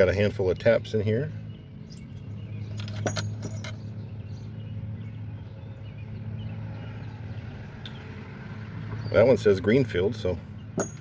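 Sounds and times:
metal taps clinking together: 10.8 - 11.0.

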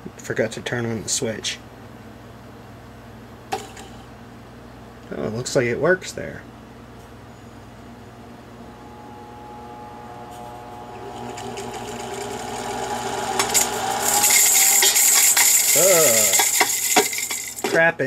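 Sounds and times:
vacuum cleaner motor whine: 8.6 - 16.7.

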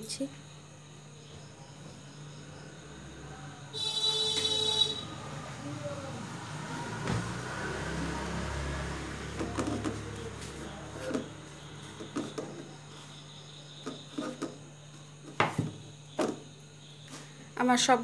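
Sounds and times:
food knocking and scraping on steel plate: 11.0 - 12.7, 13.8 - 14.6.

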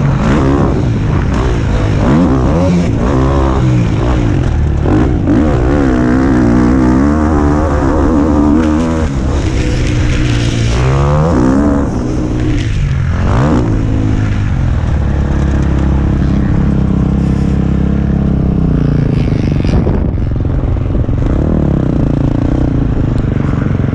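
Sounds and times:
two-stroke motocross bike engine: 0.0 - 23.9
wind rush: 19.1 - 22.1.

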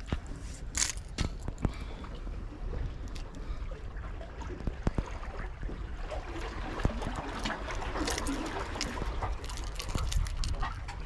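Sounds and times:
water washing among rocks: 6.3 - 11.0.

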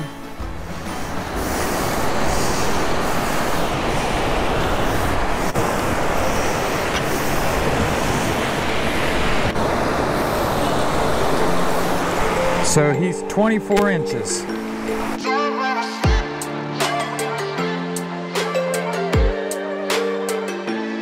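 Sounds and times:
wind roaring on microphone: 0.0 - 13.2
surf washing along beach: 0.0 - 15.2.

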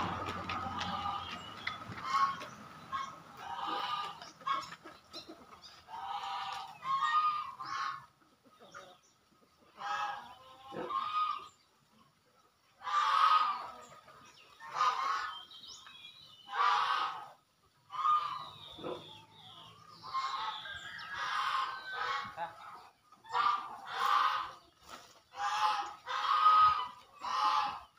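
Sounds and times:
fowl honking calls: 0.0 - 4.7, 5.9 - 8.1, 16.5 - 19.2, 23.2 - 24.6, 25.3 - 27.9.

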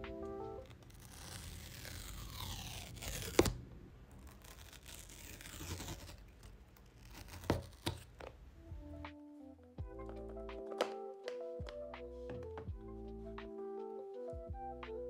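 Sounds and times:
paper strip tearing: 0.6 - 8.1.

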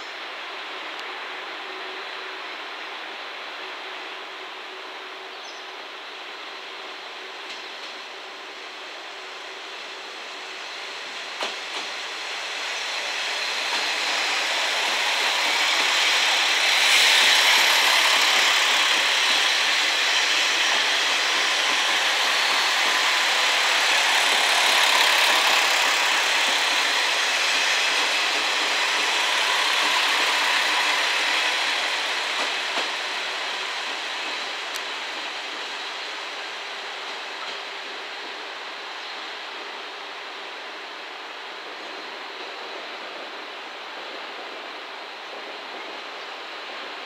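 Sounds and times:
diesel train engines running: 0.0 - 47.0
steel wheels rolling on rails: 11.3 - 35.7.

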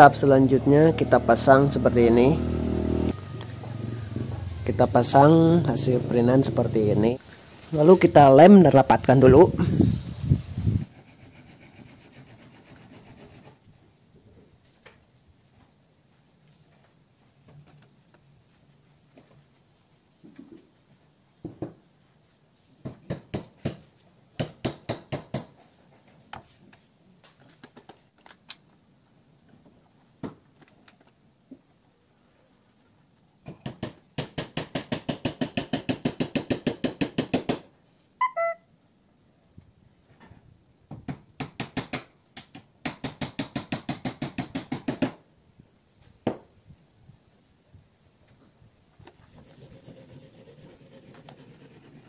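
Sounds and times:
hands rubbing paper on wood: 10.8 - 13.6, 49.4 - 52.0
short chirp: 38.2 - 38.7.

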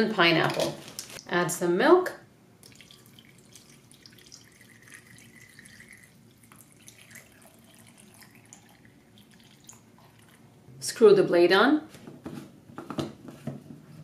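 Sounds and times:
milk trickling into cup: 2.6 - 10.5.

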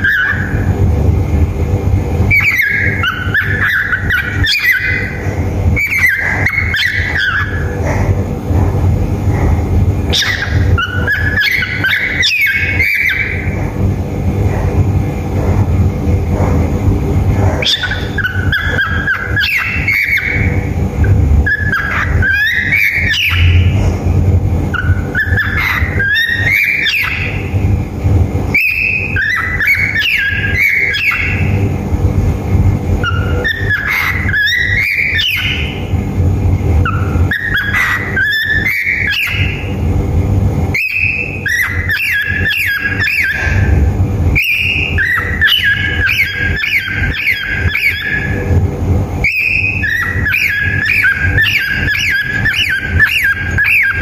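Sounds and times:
cockatiel whistling and chirping: 0.0 - 0.7, 2.3 - 5.2, 5.8 - 7.8, 10.1 - 13.6, 17.6 - 20.7, 21.4 - 23.8, 24.7 - 27.6, 28.5 - 31.6, 33.0 - 35.9, 36.8 - 39.8, 40.7 - 43.7, 44.4 - 48.5, 49.2 - 54.0.

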